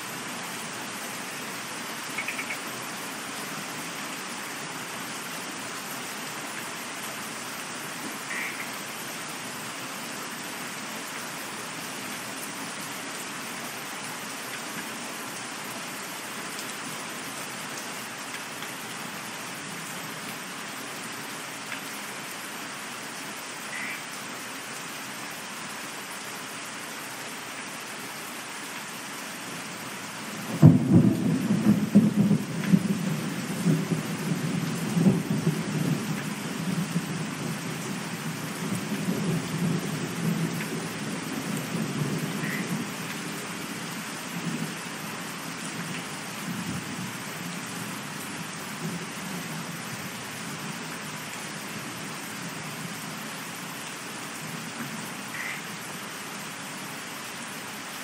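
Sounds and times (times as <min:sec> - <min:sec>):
steady rain: 0:00.0 - 0:58.0
thunder clap and rumble: 0:30.5 - 0:37.8.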